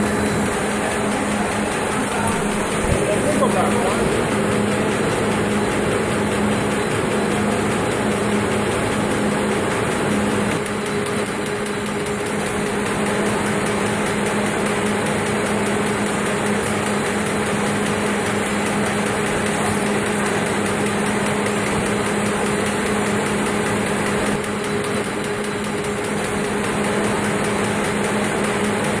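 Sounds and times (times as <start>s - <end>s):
printing press running: 0.0s - 29.0s.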